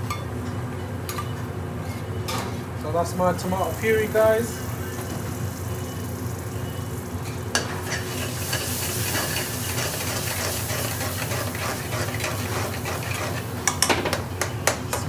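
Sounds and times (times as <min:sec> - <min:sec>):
food sizzling in hot oil: 0:03.6 - 0:13.8
spoon stirring and scraping a pan: 0:07.6 - 0:14.6.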